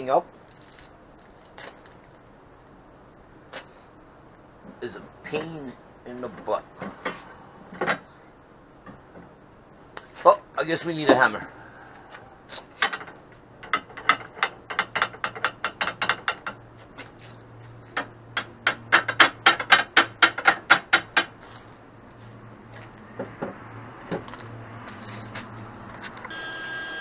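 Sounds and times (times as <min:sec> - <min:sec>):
hammer tapping steel tubing: 0:13.7 - 0:16.6, 0:18.0 - 0:21.4.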